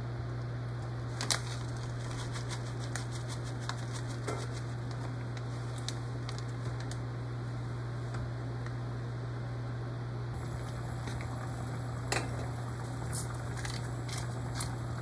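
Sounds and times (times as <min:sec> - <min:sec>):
steady low hum: 0:00.0 - 0:15.0
stew simmering with pops: 0:10.4 - 0:15.0.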